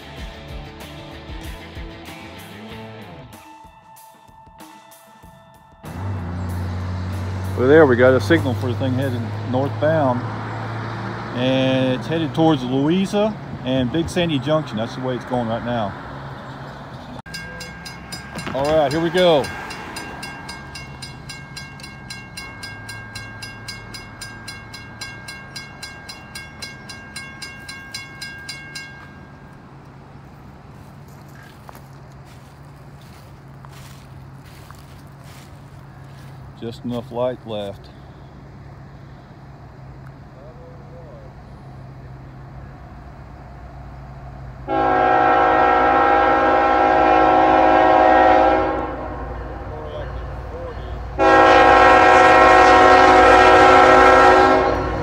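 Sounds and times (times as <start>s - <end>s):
railroad crossing bell ringing: 3.4s - 10.2s, 17.3s - 35.5s, 44.7s - 55.0s
locomotive air horn blast: 44.6s - 55.0s.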